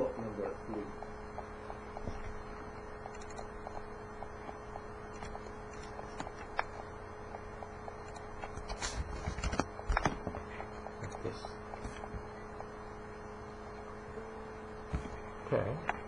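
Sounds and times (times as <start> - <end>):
low electrical hum: 0.0 - 16.0
mouse clicks: 3.0 - 3.9.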